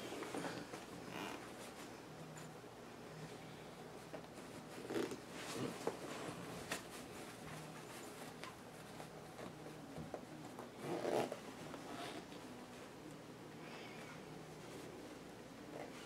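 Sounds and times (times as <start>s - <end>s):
short zipper zips: 10.8s - 12.2s.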